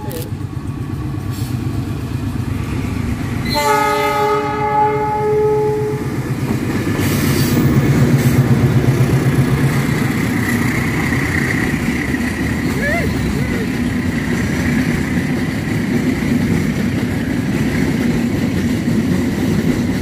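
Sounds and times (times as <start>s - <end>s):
locomotive horn chord: 3.4s - 6.2s
diesel engine running: 5.9s - 16.4s.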